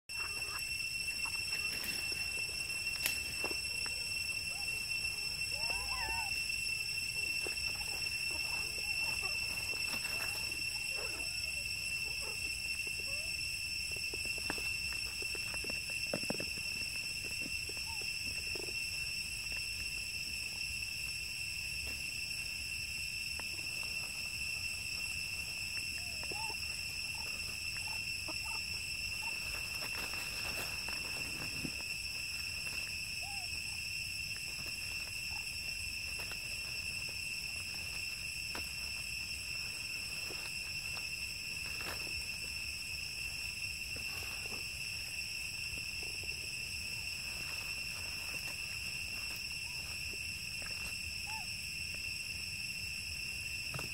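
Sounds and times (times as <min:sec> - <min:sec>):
monkeys squeaking softly: 0:00.1 - 0:02.4, 0:03.6 - 0:06.4
high-pitched insect drone: 0:00.1 - 0:53.9
dry leaves crackling: 0:28.4 - 0:33.4.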